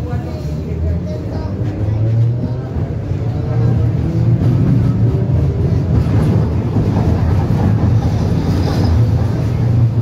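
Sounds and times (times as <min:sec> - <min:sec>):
tram rumbling on rails: 0:00.0 - 0:10.0.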